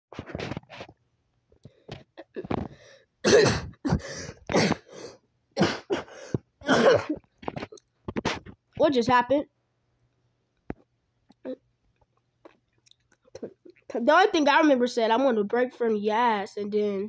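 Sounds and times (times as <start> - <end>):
person clearing throat: 2.1 - 4.9, 5.6 - 7.2
person coughing: 2.2 - 7.2.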